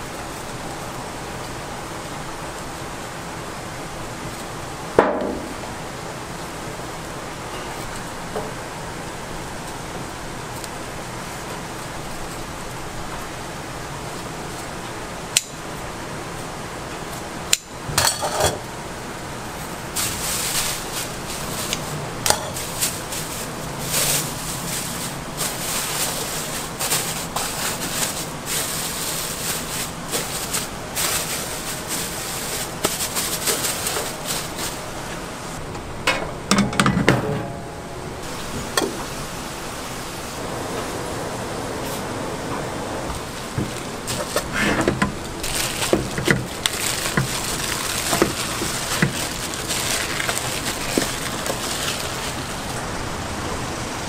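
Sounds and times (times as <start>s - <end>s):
plastic wrap rustling: 19.4s - 35.6s, 43.2s - 53.0s.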